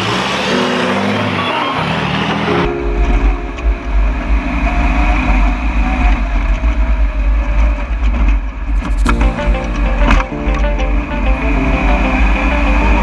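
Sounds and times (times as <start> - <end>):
race car engine: 0.0 - 2.7
heavy low rumble: 2.7 - 6.7.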